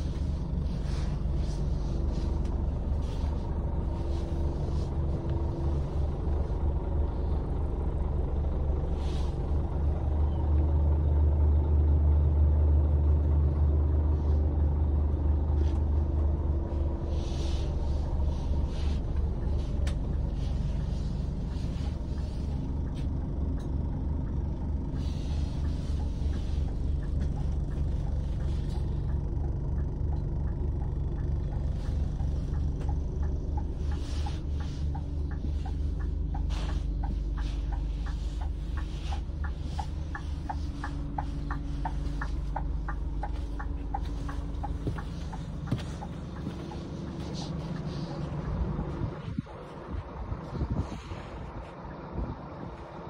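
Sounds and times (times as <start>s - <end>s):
coach engine idling: 0.0s - 53.0s
regular ticking: 17.7s - 49.0s.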